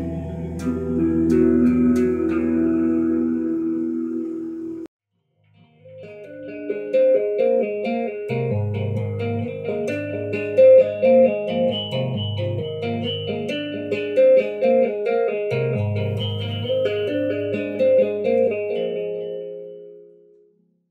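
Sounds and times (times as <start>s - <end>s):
tapped bass high notes: 0.0s - 4.4s, 15.5s - 18.6s
sustained low bass notes: 0.0s - 4.8s.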